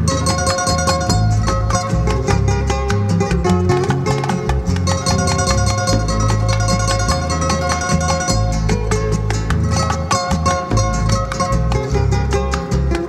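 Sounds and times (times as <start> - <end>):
bass line: 0.0 - 13.0
plucked guitars playing melody: 0.0 - 13.0.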